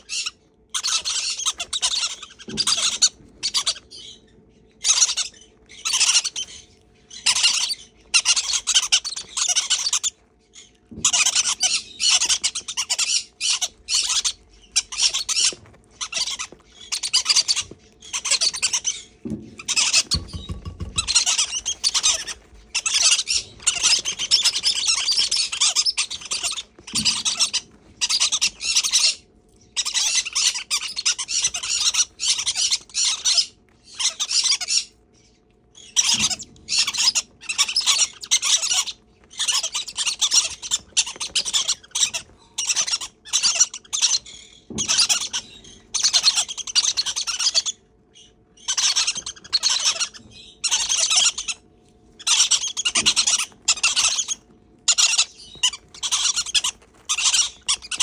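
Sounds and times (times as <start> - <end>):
parrot chicks hissing begging calls: 0.0 - 4.0, 4.8 - 10.2, 11.0 - 20.3, 21.0 - 34.9, 35.8 - 47.8, 48.6 - 51.6, 52.2 - 58.0.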